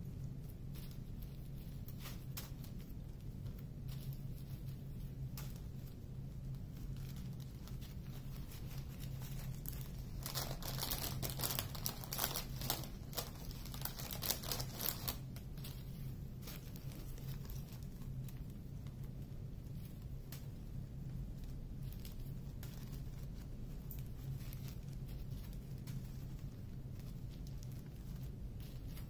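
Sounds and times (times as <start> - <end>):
steady low hum: 0.0 - 29.0
plastic bags crinkling: 0.3 - 20.6, 21.2 - 29.0.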